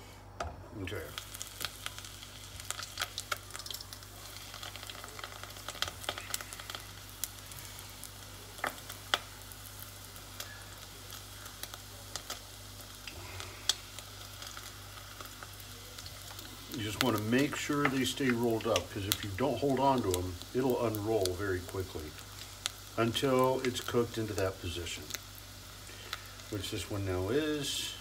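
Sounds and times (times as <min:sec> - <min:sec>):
oil sizzling with crackles: 0:00.0 - 0:28.0.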